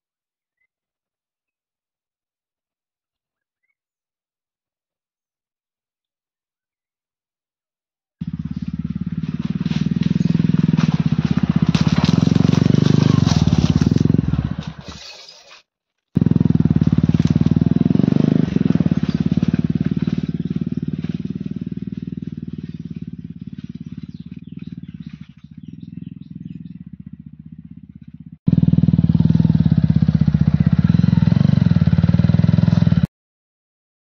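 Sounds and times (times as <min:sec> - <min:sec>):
motorcycle engine running: 0:08.2 - 0:15.1, 0:16.2 - 0:33.1.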